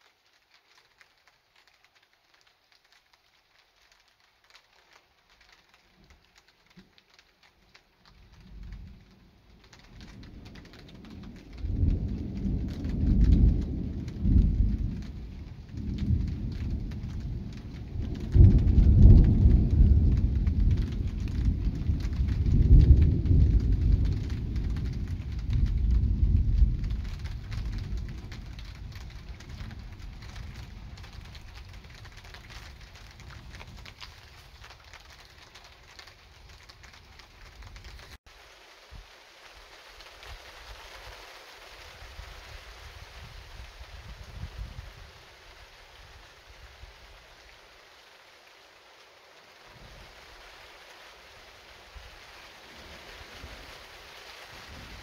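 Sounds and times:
rolling thunder rumble: 0:08.2 - 0:38.2.

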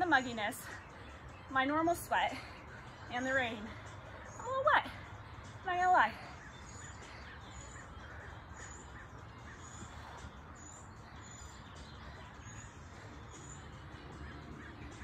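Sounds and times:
bird calling: 0:05.8 - 0:15.0.

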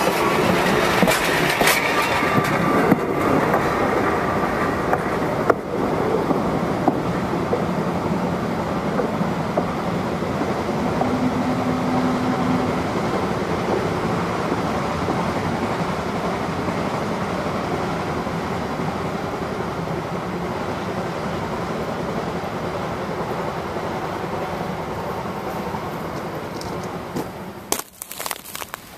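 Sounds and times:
train wheels on rails: 0:00.0 - 0:28.9.

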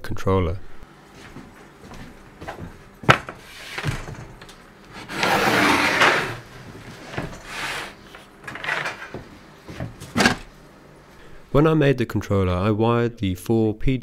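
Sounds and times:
wood scraping on wood: 0:02.4 - 0:10.5.

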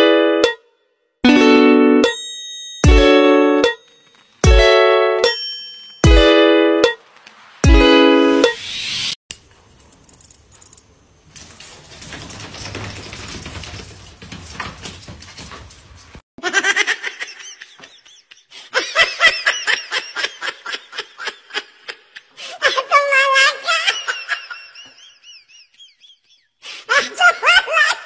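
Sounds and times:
high-pitched giggling laughter: 0:16.4 - 0:25.0, 0:26.9 - 0:28.0.

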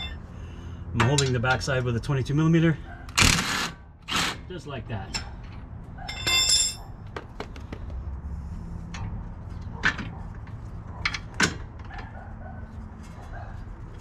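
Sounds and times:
light metal clinks and knocks: 0:05.1 - 0:07.4.

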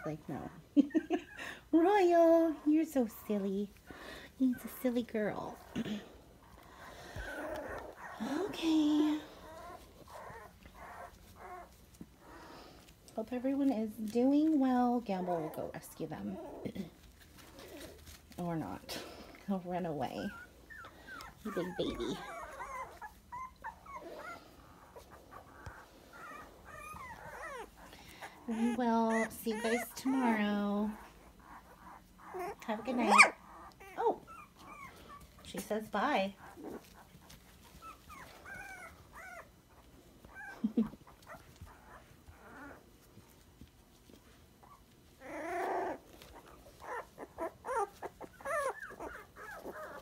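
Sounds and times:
puppies whimpering and squeaking: 0:00.0 - 0:50.0.

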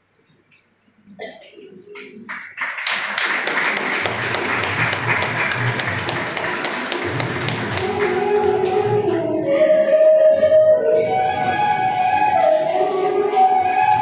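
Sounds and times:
audience clapping: 0:01.9 - 0:09.2
music melody: 0:07.0 - 0:14.0.

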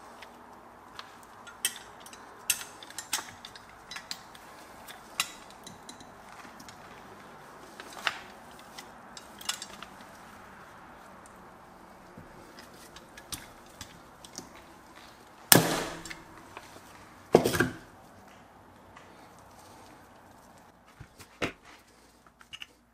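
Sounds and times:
rivet tool metallic clicks: 0:01.0 - 0:06.1.

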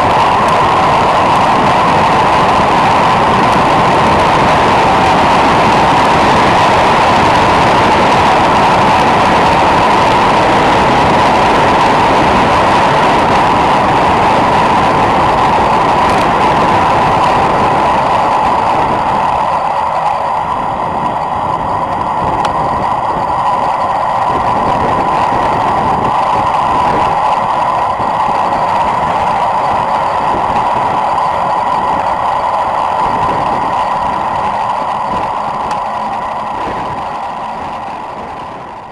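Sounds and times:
rushing wind noise: 0:00.0 - 0:38.9
tyre roar on tarmac: 0:00.0 - 0:38.9.

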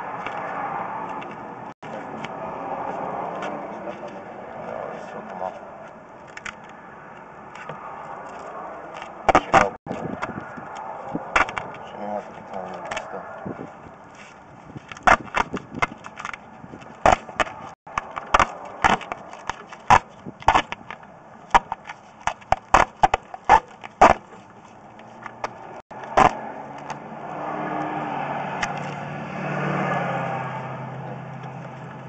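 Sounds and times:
sharp clacks and knocks: 0:09.0 - 0:11.8.

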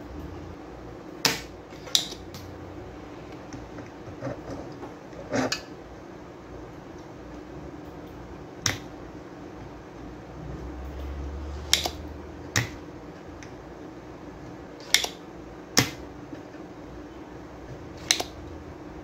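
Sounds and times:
desoldering pump snapping: 0:11.7 - 0:13.6, 0:14.8 - 0:15.2, 0:18.0 - 0:18.4.

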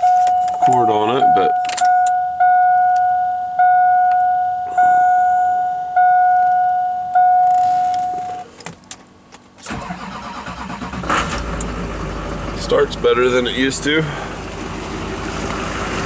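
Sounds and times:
dashboard warning chime dinging: 0:00.0 - 0:08.6
diesel engine starter cranking: 0:09.6 - 0:14.6.

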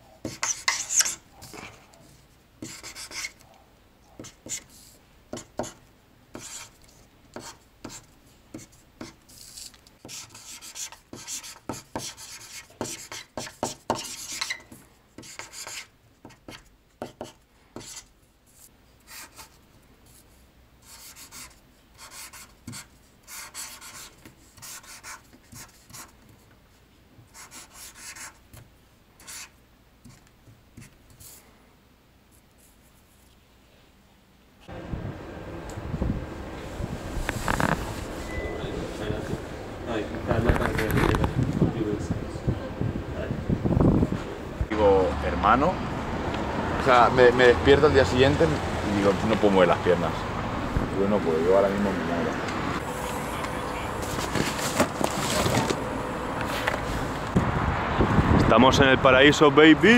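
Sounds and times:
scratching and rubbing on a surface: 0:00.2 - 0:03.4, 0:06.4 - 0:26.2, 0:27.3 - 0:28.4, 0:29.2 - 0:30.2, 0:37.2 - 0:38.2.

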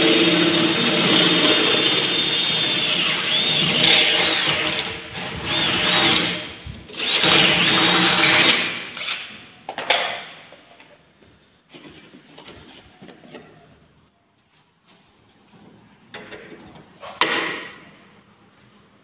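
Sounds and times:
cordless drill drilling: 0:00.0 - 0:09.4.

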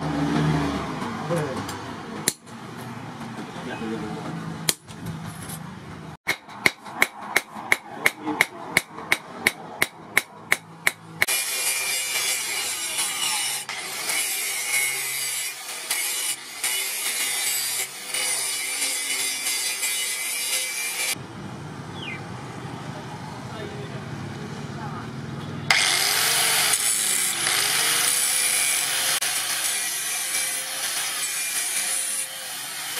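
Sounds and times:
hammer striking blade on anvil: 0:06.3 - 0:13.8
angle grinder grinding steel: 0:11.2 - 0:21.2, 0:25.7 - 0:32.9.

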